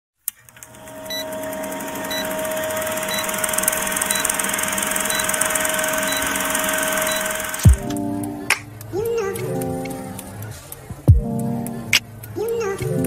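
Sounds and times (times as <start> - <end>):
film projector whirring clatter: 0.3 - 7.8
steady hum: 0.5 - 13.0.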